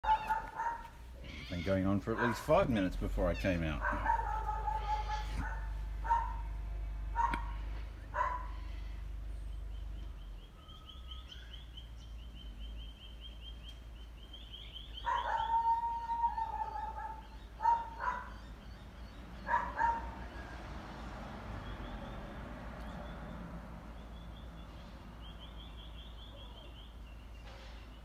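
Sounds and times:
dog howling: 0.0 - 0.8, 3.8 - 6.4, 7.2 - 8.8, 15.0 - 18.3
dog barking: 0.0 - 1.0, 2.1 - 2.8, 3.8 - 6.5, 7.1 - 8.6, 15.0 - 18.4, 19.4 - 20.5.

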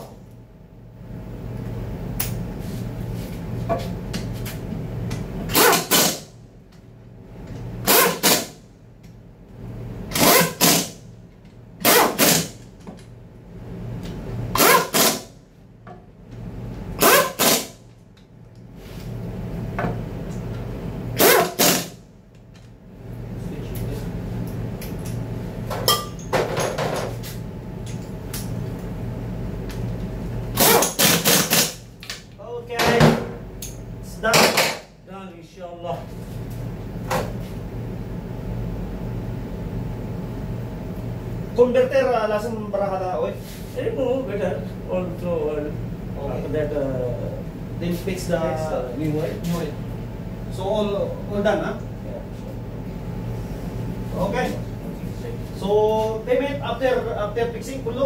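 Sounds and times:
steady low hum: 0.0 - 58.0
impact wrench bursts: 5.5 - 6.3, 7.8 - 8.6, 10.1 - 11.0, 11.8 - 12.6, 14.5 - 15.3, 17.0 - 17.8, 21.2 - 22.0, 30.5 - 31.8.

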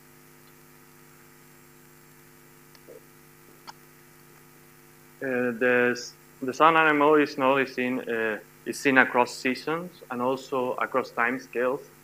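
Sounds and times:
electrical mains hum: 0.0 - 12.0
man speaking: 5.2 - 12.0.

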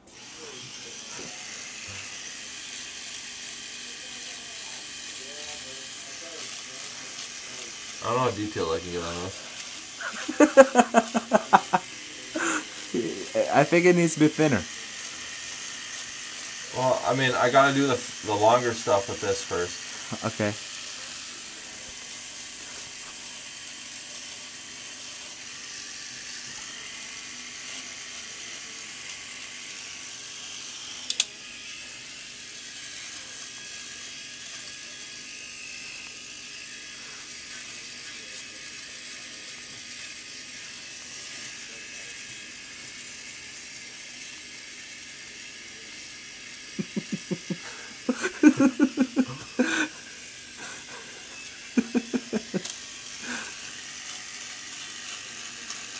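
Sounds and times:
electric shaver running: 0.0 - 55.9
shaver click: 31.0 - 31.4, 51.4 - 52.9.

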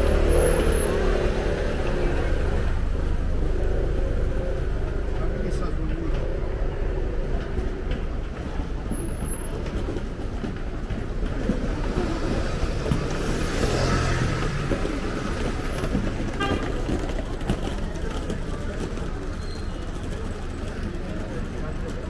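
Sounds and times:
low rumble of traffic: 0.0 - 22.0
motor scooter passing: 11.2 - 21.7.

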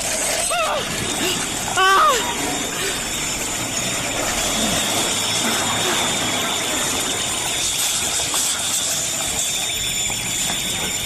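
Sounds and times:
steady rushing noise: 0.0 - 11.0.

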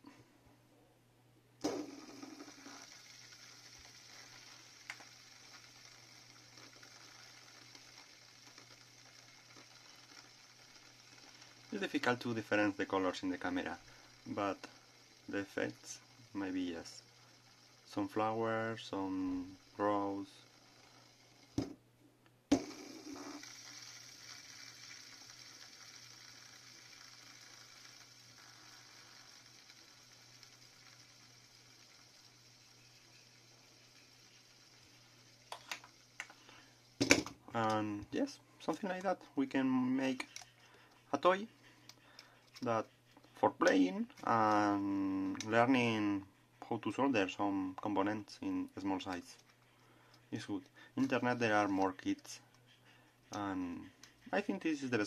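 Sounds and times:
low steady hum: 0.0 - 55.0
fidget spinner click: 1.6 - 21.7, 22.5 - 36.4
fidget spinner whirring: 1.6 - 21.8, 22.5 - 55.0.

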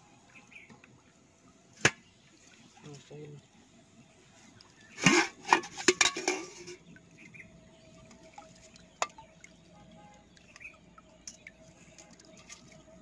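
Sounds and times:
faint bird chirps: 0.0 - 0.8
metal pot and bowl clattering: 5.0 - 6.9
wet ticks and splashes: 7.8 - 13.0.

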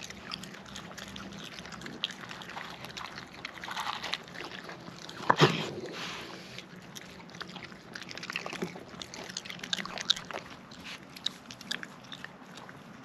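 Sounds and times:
raccoons chewing food: 0.0 - 13.0.

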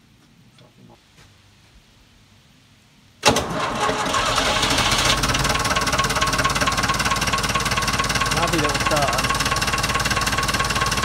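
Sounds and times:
tractor engine starting and idling: 3.2 - 11.0.

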